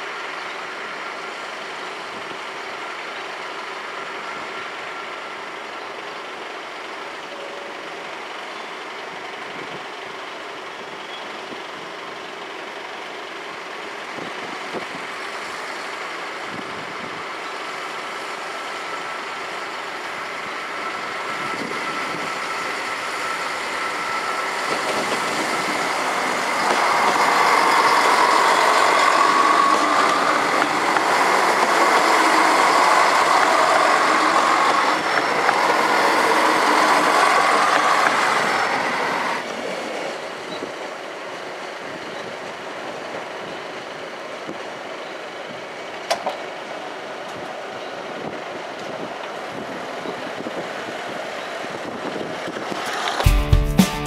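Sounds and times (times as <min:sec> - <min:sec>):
wheel and rail noise: 0:00.0 - 0:53.4
diesel railcars passing: 0:00.0 - 0:54.0.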